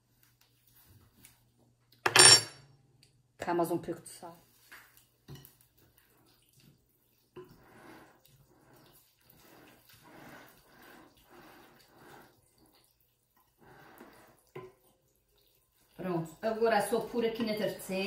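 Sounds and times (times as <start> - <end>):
wooden spoon stirring in glass bowl: 4.5 - 18.0.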